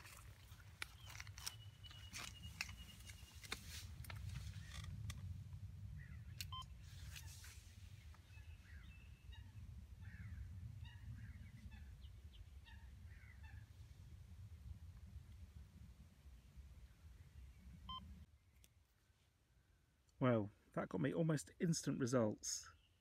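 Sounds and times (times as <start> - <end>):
birds chirping: 0.0 - 5.1, 5.8 - 14.0, 16.2 - 18.8, 21.9 - 23.0
steady low rumble: 0.0 - 18.5.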